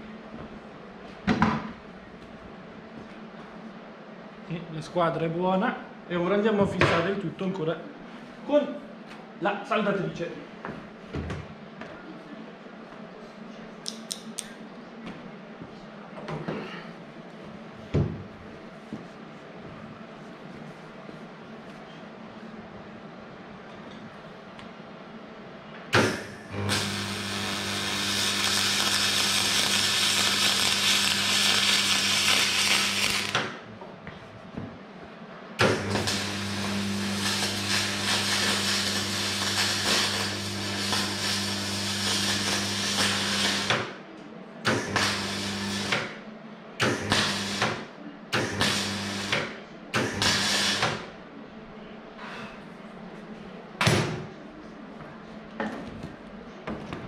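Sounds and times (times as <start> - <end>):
welding arc humming and hissing: 26.0 - 33.6, 35.6 - 44.0, 44.7 - 46.2, 46.8 - 51.1.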